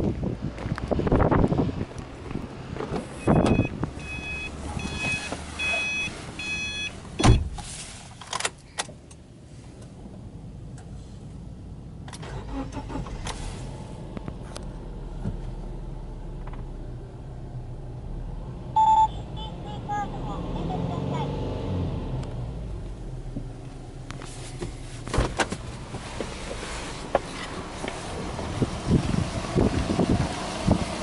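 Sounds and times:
car engine starting and idling: 0.0 - 31.0
car warning chime beeping: 3.2 - 7.4, 18.8 - 19.6
car door thudding shut: 7.2 - 7.6, 24.6 - 25.6.

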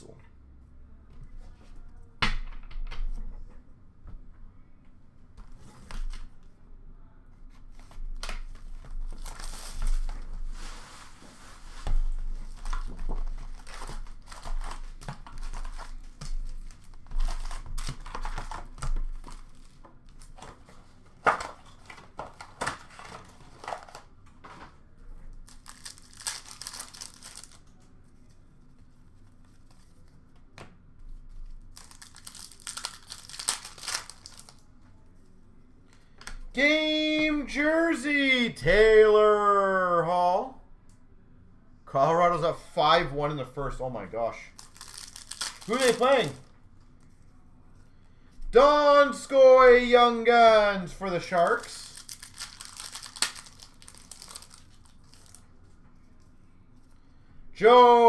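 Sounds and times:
foil packs tearing and crinkling: 8.6 - 10.2, 12.4 - 20.4, 25.4 - 27.6, 31.7 - 34.6, 44.6 - 46.4, 51.4 - 55.4.

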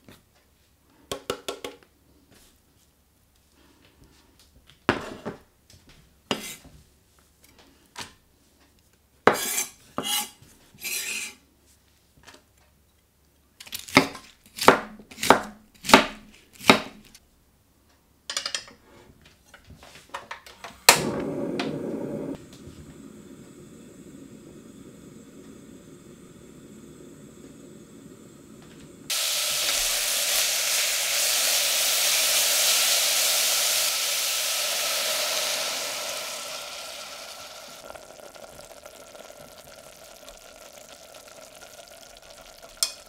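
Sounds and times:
scrapes on chopping board: 6.3 - 6.6, 9.3 - 11.4
gas stove hissing: 20.6 - 43.0.

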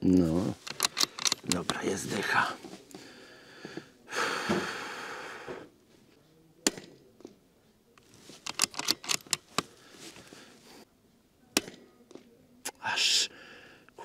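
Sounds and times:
rifle bolt clicking: 0.6 - 1.9, 8.0 - 9.7.

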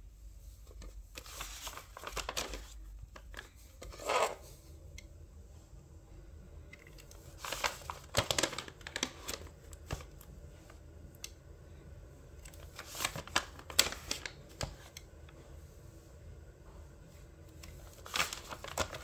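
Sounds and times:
paper pages rustling: 0.7 - 4.4, 7.2 - 10.2, 12.5 - 14.9, 17.7 - 19.0.

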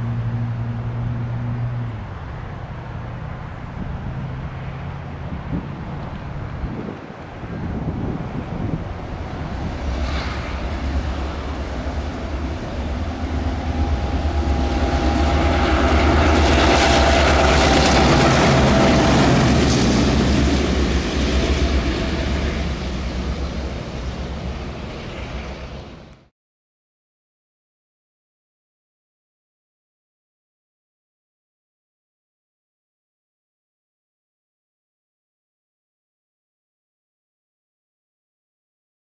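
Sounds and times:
diesel locomotive engines humming: 0.0 - 26.3
wheel and rail noise: 0.0 - 26.3.

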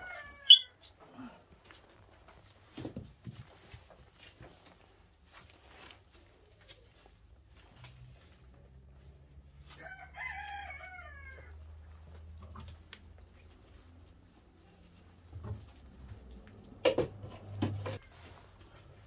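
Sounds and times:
rooster crowing: 0.0 - 0.6, 9.7 - 11.6.

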